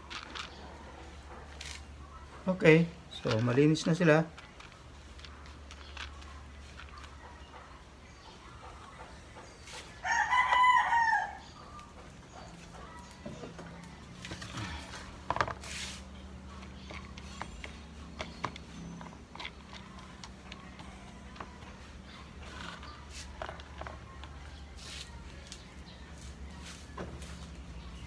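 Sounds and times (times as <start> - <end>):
rooster crowing: 10.0 - 11.5
seeds rustling in plastic colander: 15.6 - 16.0.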